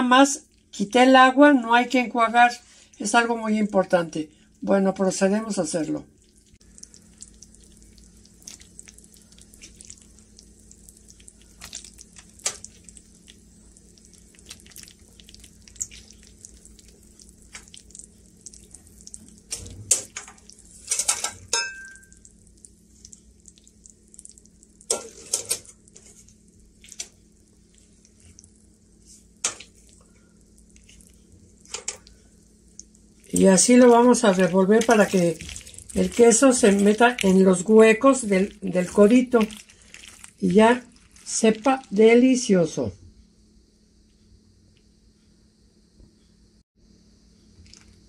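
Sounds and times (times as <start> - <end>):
faint steady hum: 0.0 - 48.0
wet plops of pasta: 6.2 - 21.2, 29.4 - 37.4, 38.4 - 41.3
metal colander clinking on pan: 20.9 - 22.1.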